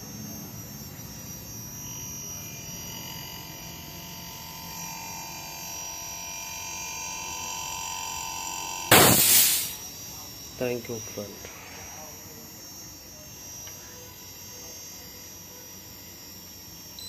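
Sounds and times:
high steady whine: 8.7s - 13.2s
compressor humming: 8.9s - 9.9s.

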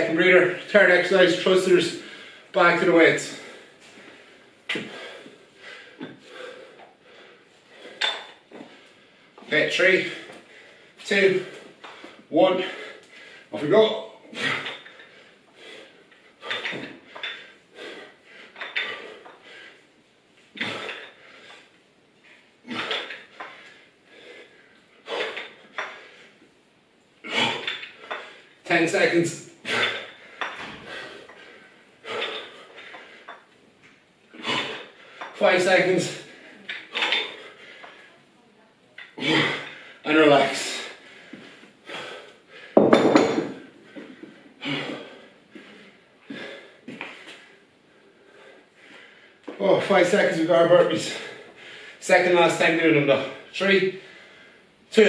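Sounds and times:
dumbbell exercise noise: 0.0s - 55.0s
man breathing hard: 2.0s - 2.6s, 3.2s - 9.5s, 10.1s - 13.6s, 14.2s - 21.8s, 22.6s - 26.6s, 29.6s - 33.5s, 36.1s - 38.1s, 39.2s - 49.5s, 51.0s - 52.0s, 54.0s - 54.8s
dumbbells clunking on tiled floor: 4.7s - 5.1s, 7.8s - 8.8s, 14.4s - 15.2s, 16.4s - 19.5s, 20.6s - 21.6s, 22.7s - 23.8s, 25.0s - 26.2s, 27.3s - 28.4s, 29.6s - 33.6s, 34.3s - 35.4s, 36.6s - 38.1s, 42.6s - 47.5s.

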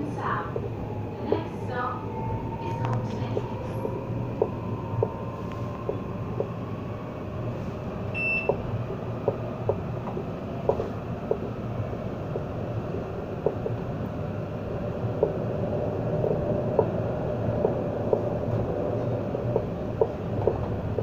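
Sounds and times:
tram rumble: 0.0s - 21.0s
high beep: 8.2s - 8.5s
wheels clicking on track: 8.4s - 21.0s.

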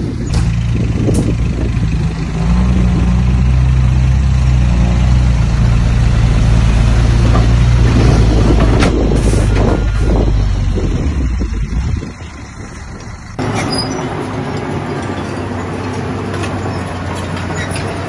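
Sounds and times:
diesel engine revving: 0.0s - 18.0s.

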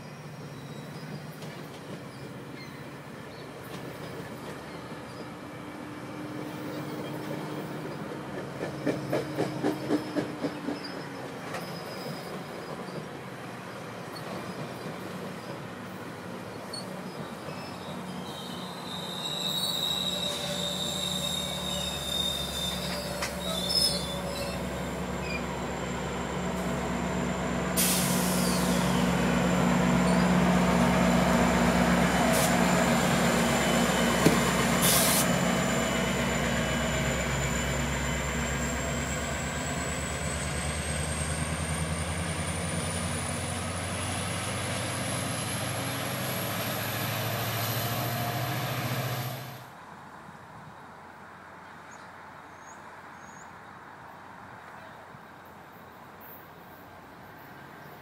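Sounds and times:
train rumbling past: 0.0s - 49.9s
high wheel squeal: 8.7s - 13.0s, 16.5s - 41.6s.

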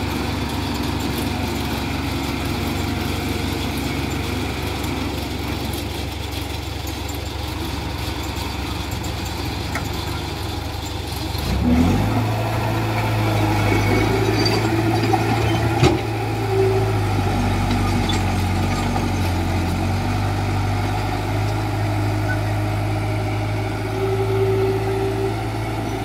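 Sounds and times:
heavy diesel engine running: 0.0s - 26.0s.

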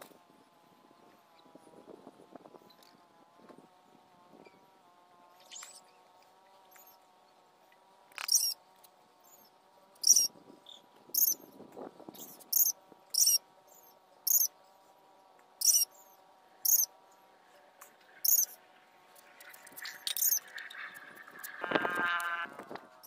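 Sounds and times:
small animal chirping: 8.2s - 8.6s, 9.3s - 11.4s, 12.2s - 14.5s, 15.6s - 16.9s, 18.2s - 18.6s, 19.5s - 20.5s.

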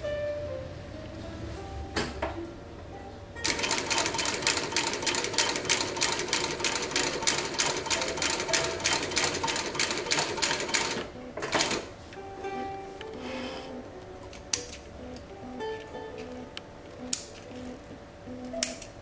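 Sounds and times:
industrial sewing machine stitching: 3.4s - 11.9s.

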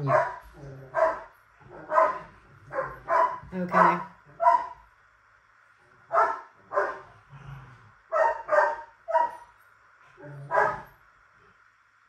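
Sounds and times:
dog barking: 0.0s - 3.5s, 4.4s - 4.8s, 6.1s - 7.1s, 8.1s - 9.4s, 10.4s - 10.9s.

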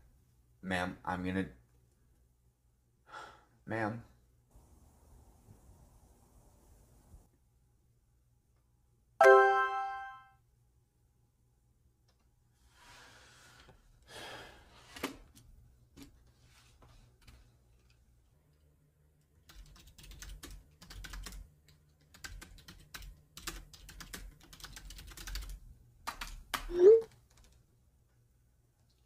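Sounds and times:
keyboard typing: 19.4s - 27.6s.

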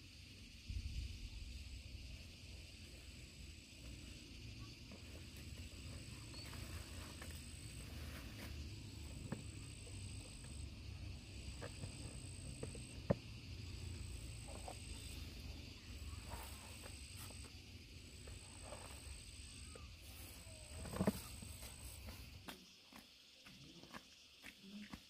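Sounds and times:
insect trilling: 0.0s - 22.4s.

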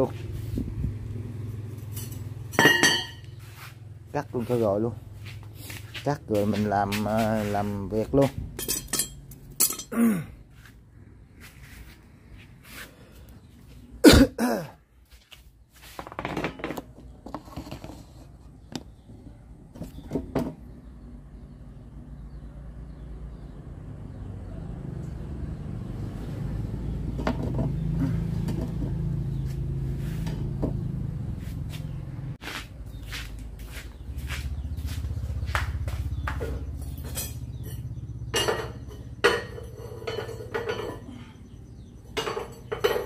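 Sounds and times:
metal tools clattering: 1.8s - 3.3s, 8.5s - 10.0s, 36.5s - 41.4s, 42.0s - 43.0s
person coughing: 9.9s - 10.4s, 14.0s - 14.8s.

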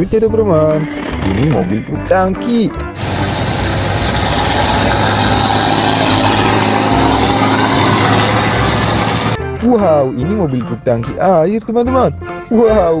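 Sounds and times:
road and traffic noise: 3.0s - 9.4s
truck engine running: 3.0s - 9.4s.

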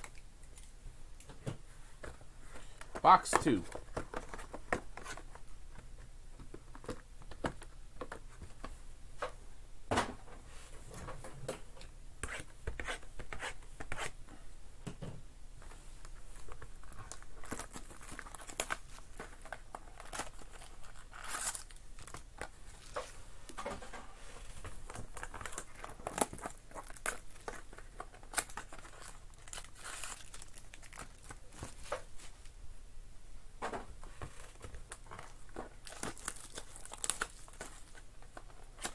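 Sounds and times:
foil pack crinkling: 16.4s - 23.1s, 24.8s - 31.8s, 34.9s - 38.9s.

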